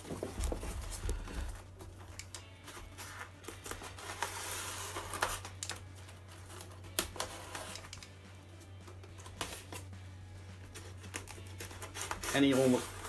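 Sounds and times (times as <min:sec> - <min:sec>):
utility knife slicing tape: 0:03.6 - 0:05.8, 0:06.5 - 0:08.1.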